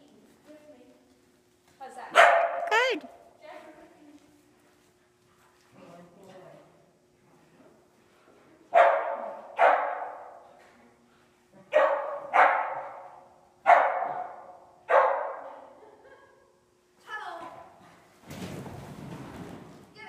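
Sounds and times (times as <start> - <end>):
dog barking with echo: 2.2 - 2.7, 8.8 - 10.3, 11.7 - 13.1, 13.7 - 15.4.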